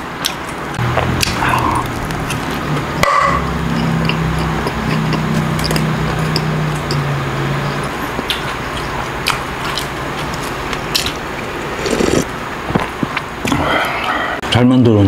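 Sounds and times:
wet mouth clicks: 3.7s - 7.0s.

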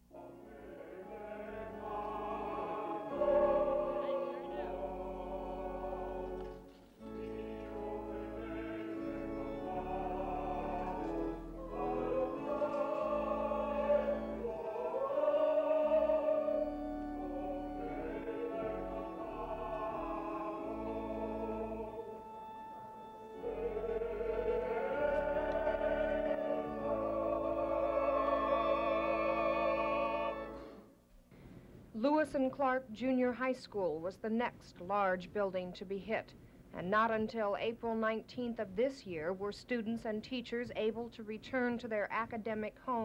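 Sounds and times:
choir singing: 0.0s - 30.9s.

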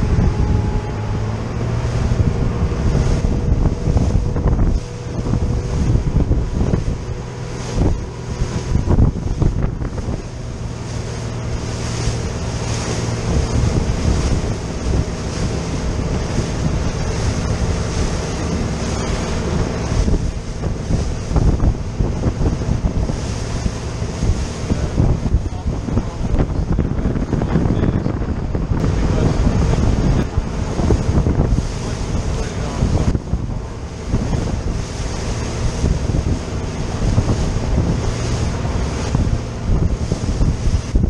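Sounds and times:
boat engine drone: 0.0s - 41.0s
hull knocking on waves: 0.0s - 41.0s
water rushing along hull: 0.0s - 41.0s
wind buffeting microphone: 0.0s - 41.0s.

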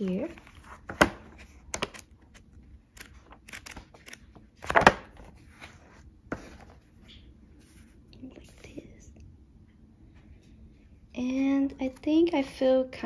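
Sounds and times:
paper pages flipping: 0.0s - 7.9s.

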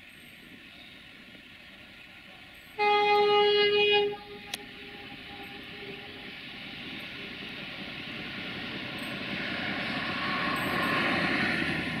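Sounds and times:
diesel locomotive engine: 0.0s - 12.0s
locomotive air horn blast: 2.8s - 6.3s.

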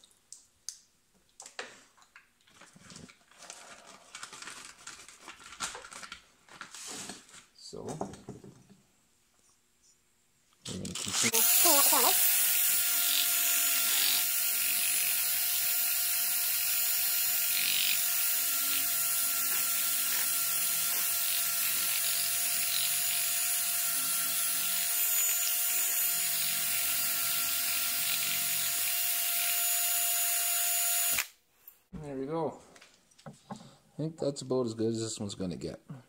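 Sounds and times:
cordless drill whining: 11.2s - 31.4s.

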